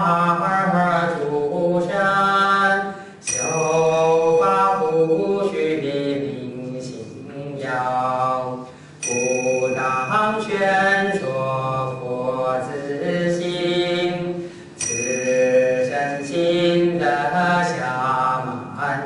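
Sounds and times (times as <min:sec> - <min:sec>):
man chanting: 0:00.0 - 0:14.5, 0:15.2 - 0:19.0
thin high tone: 0:03.2 - 0:05.2, 0:09.0 - 0:11.6, 0:14.8 - 0:19.0
short breaths: 0:08.7 - 0:09.0, 0:14.4 - 0:14.8.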